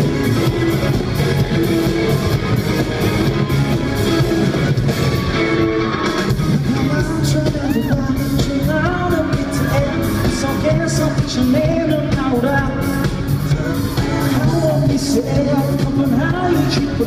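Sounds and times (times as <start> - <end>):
bass guitar: 0.0 - 17.0
drums: 0.0 - 17.0
electric guitars: 0.0 - 17.0
man singing: 6.6 - 17.0.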